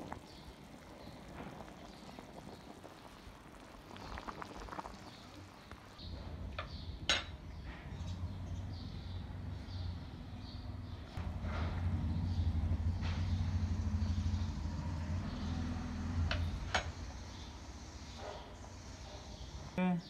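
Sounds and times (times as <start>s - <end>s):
soup bubbling in pot: 0.0s - 6.0s
steady low rumble: 10.9s - 16.8s.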